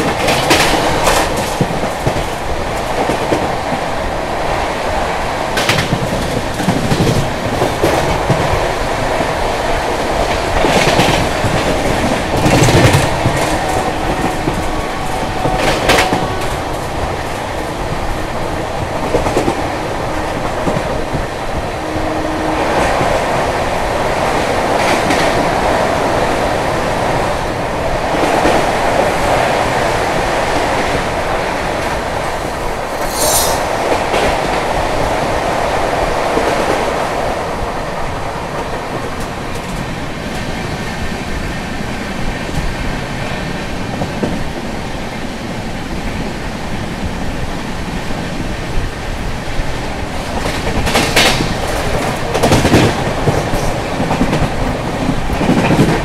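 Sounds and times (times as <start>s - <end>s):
train running on rails: 0.0s - 56.0s
high screech: 32.6s - 34.1s.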